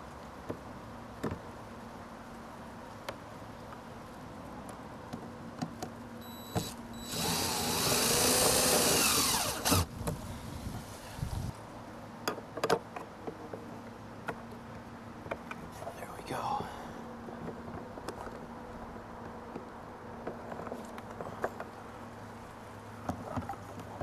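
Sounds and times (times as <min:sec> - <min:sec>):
cordless drill driving screw: 0:06.5 - 0:09.9.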